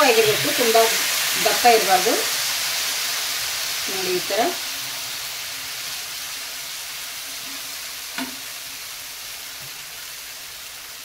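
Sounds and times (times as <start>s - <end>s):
batter sizzling on a griddle: 0.0s - 11.0s.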